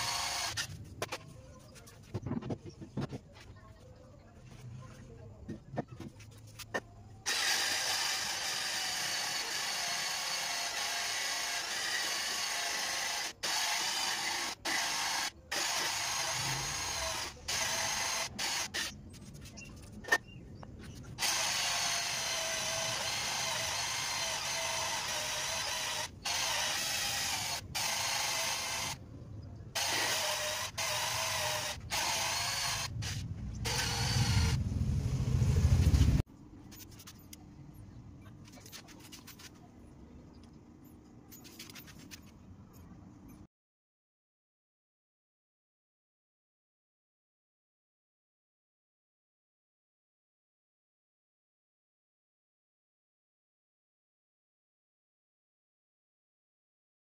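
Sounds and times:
cordless drill whining: 0:00.0 - 0:00.7, 0:07.3 - 0:18.9, 0:21.2 - 0:29.0, 0:29.8 - 0:34.6.

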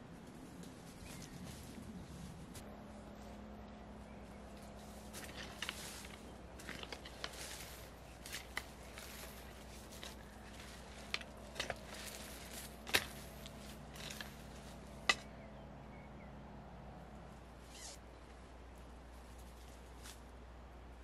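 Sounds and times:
hoe chopping and dragging soil: 0:04.6 - 0:15.3
hoe blade knocking ground: 0:05.1 - 0:15.3.

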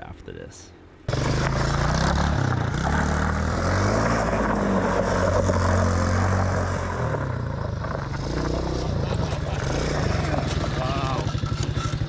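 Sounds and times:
atv engine revving: 0:01.1 - 0:12.0.

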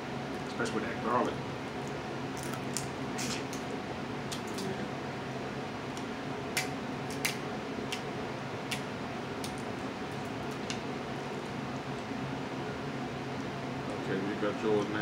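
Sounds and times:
low room hum: 0:00.0 - 0:15.0
crab shells cracking: 0:02.3 - 0:02.9, 0:04.3 - 0:04.7, 0:08.7 - 0:10.8.

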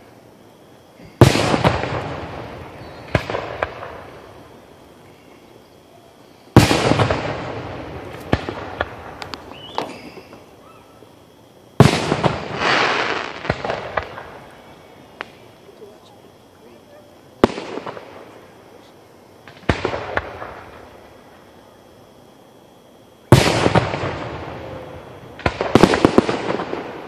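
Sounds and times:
firework booms with rolling echo: 0:01.0 - 0:05.3, 0:06.5 - 0:15.6, 0:17.4 - 0:18.7, 0:19.3 - 0:21.8, 0:23.2 - 0:27.0
firework cracks and pops: 0:01.2 - 0:04.6, 0:06.5 - 0:10.6, 0:11.8 - 0:15.5, 0:17.4 - 0:18.4, 0:19.4 - 0:21.1, 0:23.3 - 0:27.0.

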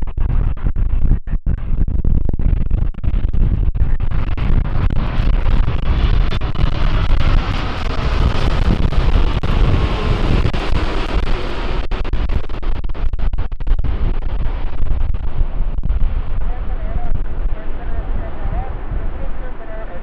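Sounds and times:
wind buffeting microphone: 0:00.0 - 0:20.0
jet engines rumbling: 0:05.7 - 0:20.0.

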